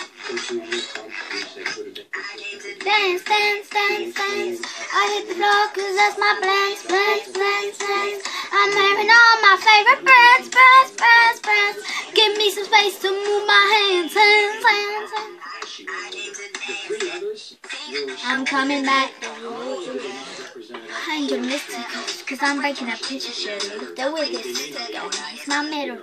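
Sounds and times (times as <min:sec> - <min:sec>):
girl singing in a high voice: 0:02.2 - 0:16.7, 0:17.7 - 0:19.5.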